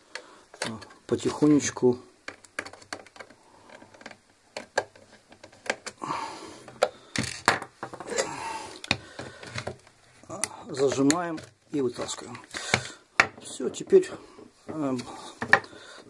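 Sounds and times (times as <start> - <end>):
plastic clicks and taps: 2.2 - 6.0
screwdriver scraping plastic: 2.3 - 6.0.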